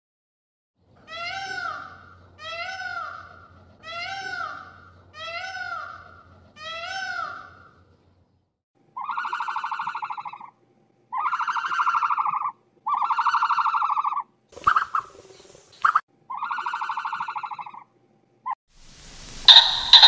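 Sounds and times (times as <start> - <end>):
peafowl wailing call: 9.0 - 15.1, 15.8 - 17.8, 19.4 - 20.0
buzzy pulsing calls: 9.0 - 17.9, 19.2 - 20.0
short hiss: 18.8 - 20.0.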